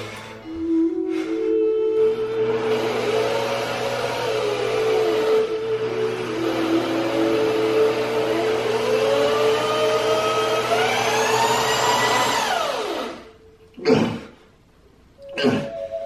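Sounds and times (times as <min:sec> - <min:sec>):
power drill motor whine: 0:02.0 - 0:13.4.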